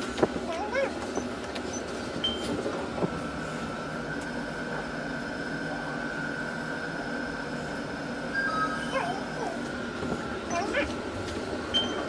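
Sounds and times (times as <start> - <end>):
elevator hum and whir: 0.0 - 12.0
constant high tone: 8.3 - 9.7, 10.5 - 10.9.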